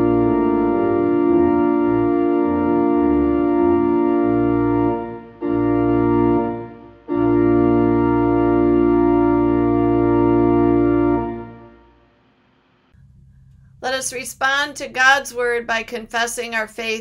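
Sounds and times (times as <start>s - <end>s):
organ playing held chords: 0.0s - 12.0s.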